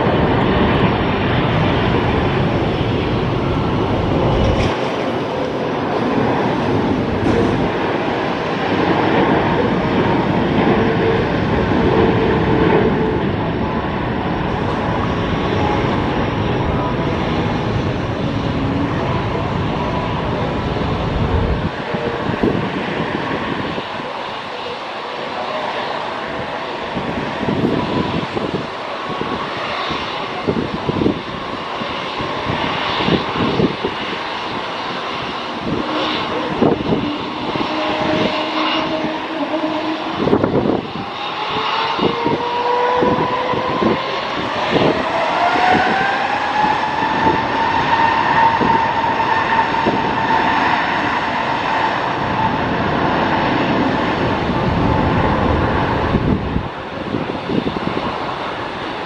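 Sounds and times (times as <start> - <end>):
jet engines rumbling: 0.0 - 59.0
engine whine rising in pitch: 32.7 - 56.8.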